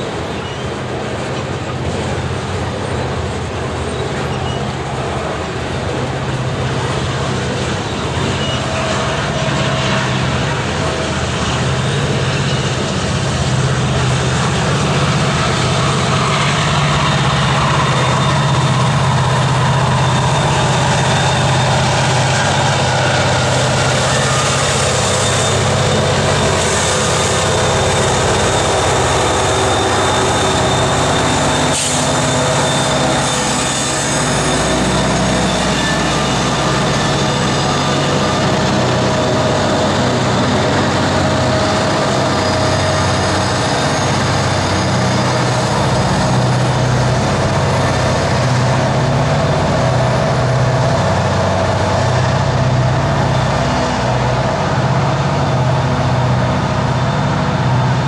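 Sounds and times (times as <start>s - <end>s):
diesel engine hum: 0.0s - 58.0s
train wheels on rails: 0.0s - 58.0s.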